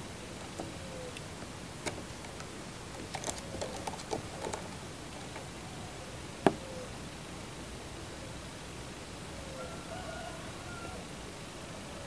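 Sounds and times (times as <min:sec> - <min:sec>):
dove clicking and tapping in cage: 0:00.2 - 0:06.9.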